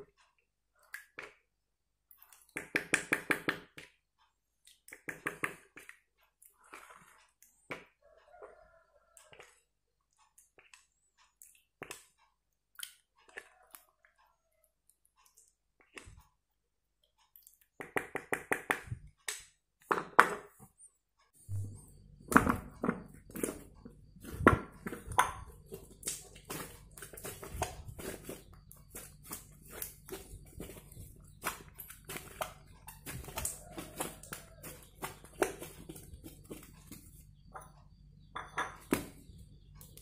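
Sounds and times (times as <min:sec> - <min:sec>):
spatula stirring slime in bowl: 0:04.8 - 0:08.6, 0:21.5 - 0:37.7
hands kneading sticky slime: 0:23.2 - 0:37.2.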